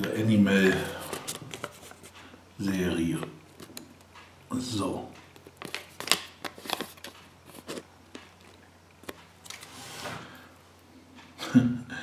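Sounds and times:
paper leaflet crinkling: 0:05.4 - 0:09.7.

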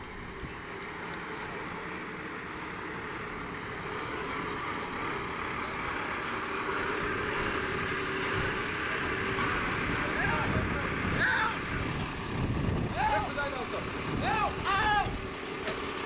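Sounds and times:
fire engine diesel engine: 0:00.0 - 0:16.0.

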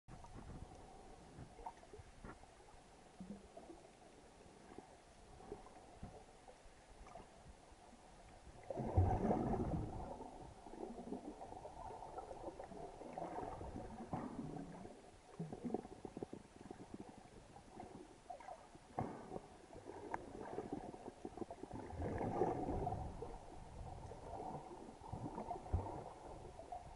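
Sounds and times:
muffled underwater water movement: 0:00.1 - 0:26.9
small clicks and crackles: 0:11.1 - 0:22.7.

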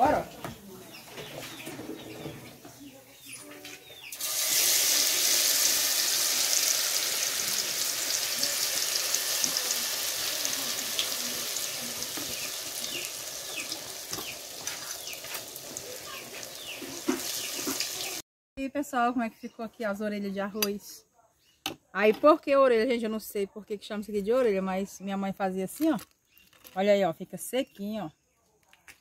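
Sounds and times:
batter sizzling in hot fat: 0:04.1 - 0:18.2.

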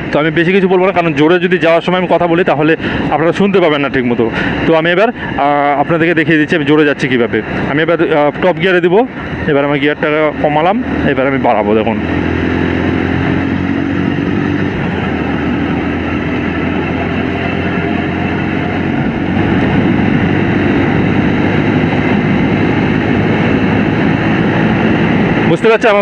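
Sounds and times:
wind rushing: 0:02.6 - 0:26.0
motorcycle engine accelerating: 0:07.5 - 0:26.0.

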